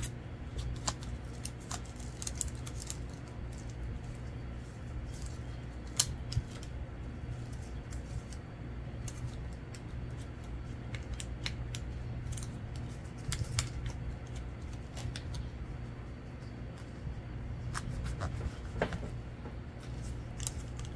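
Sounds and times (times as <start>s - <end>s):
scissors snipping paper: 0.0s - 4.3s, 5.0s - 6.8s, 7.4s - 15.6s, 19.9s - 20.9s
steady low hum: 0.0s - 20.9s.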